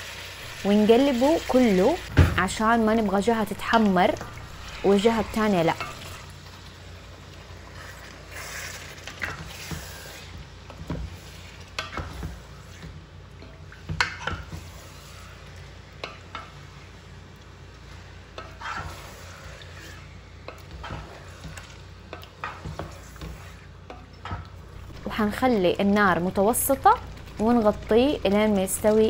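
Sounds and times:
chicken sizzling in oil: 0.0s - 2.1s
spatula scraping pot: 18.3s - 24.4s.

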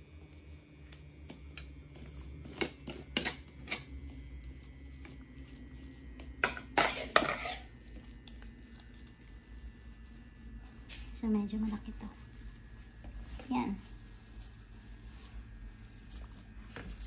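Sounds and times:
metal spoon scraping ceramic plate: 6.4s - 7.7s.

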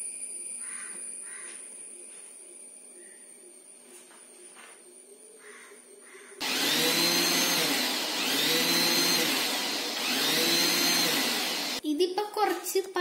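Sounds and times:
mixer grinder motor whine: 6.4s - 11.8s.

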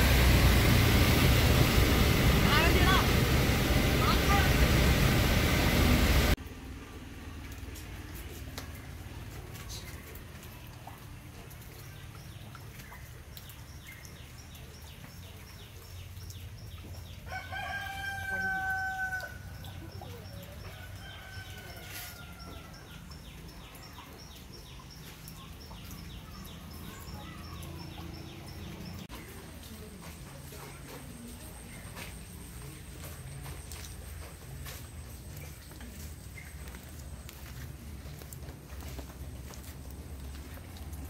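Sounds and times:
steady low rumble: 0.0s - 6.4s
rooster crowing: 17.3s - 19.5s.

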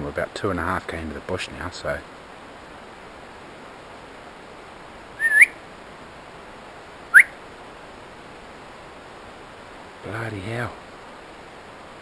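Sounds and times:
man whistling: 5.2s - 5.6s.

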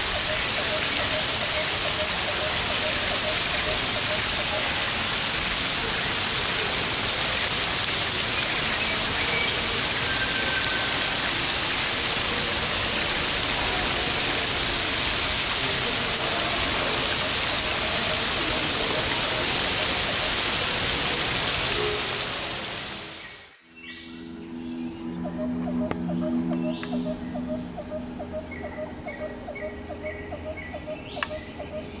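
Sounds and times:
falling water rushing: 0.0s - 23.6s.

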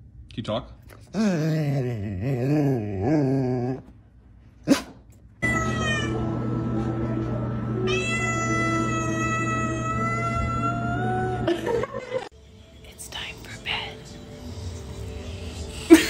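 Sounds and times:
cat yowling: 5.4s - 6.3s, 7.9s - 11.4s.

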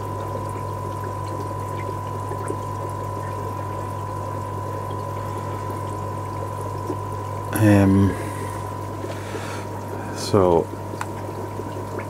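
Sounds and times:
low hum with high whine: 0.0s - 12.0s
water trickling and splashing: 0.0s - 12.0s.

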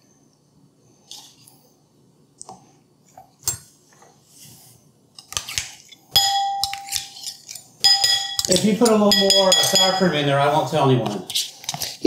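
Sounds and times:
metal cup clinking on ceramic bowl: 6.2s - 7.0s, 7.8s - 10.1s
metal cup ringing: 6.2s - 7.0s, 7.8s - 10.2s.

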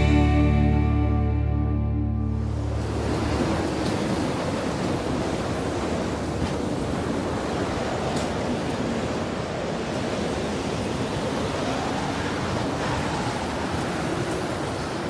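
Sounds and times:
steady rushing noise: 2.2s - 15.0s.

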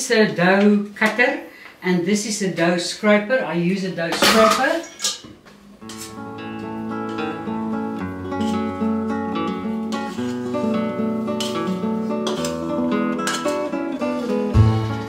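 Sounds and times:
acoustic guitar music: 5.8s - 15.0s.

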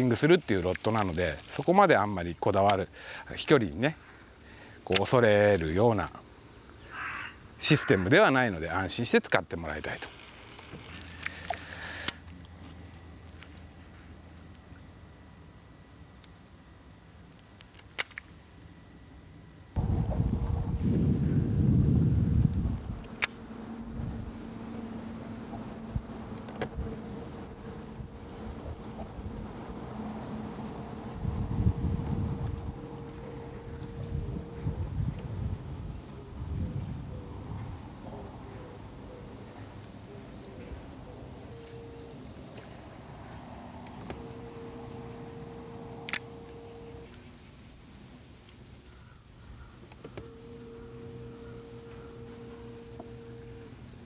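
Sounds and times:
insects trilling: 0.0s - 54.0s
sharp click: 17.6s - 18.3s, 23.1s - 23.4s, 46.1s - 46.3s
low rumbles: 19.8s - 23.1s
faint low hum: 19.8s - 47.7s.

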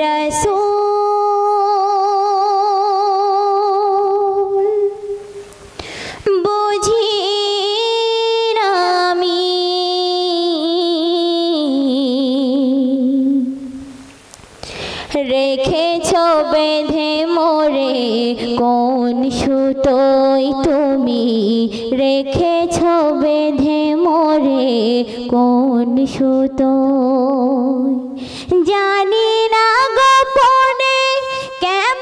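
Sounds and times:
woman singing unaccompanied: 0.0s - 5.4s, 6.2s - 14.0s, 15.1s - 32.0s
singer breathing: 5.6s - 6.3s, 14.5s - 15.2s, 28.1s - 28.6s, 31.2s - 31.6s.

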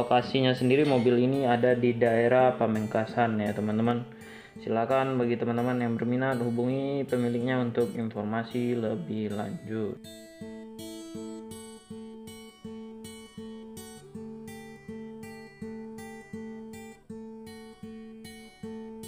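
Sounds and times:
guitar repeating pattern: 0.0s - 19.0s.

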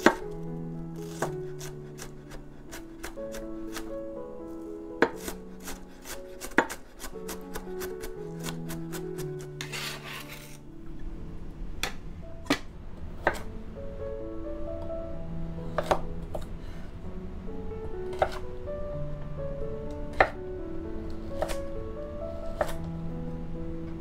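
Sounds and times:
knife chopping on wooden board: 0.0s - 0.2s, 1.0s - 3.9s, 5.0s - 10.4s, 15.8s - 16.0s, 21.4s - 21.6s
soft background music: 0.0s - 24.0s
knife blade scraping board: 9.6s - 10.6s.

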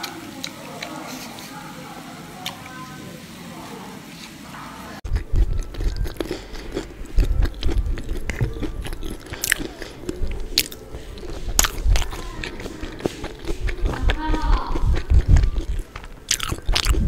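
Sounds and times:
wet mouth sounds: 5.0s - 17.0s
person chewing and biting food: 5.1s - 17.0s.

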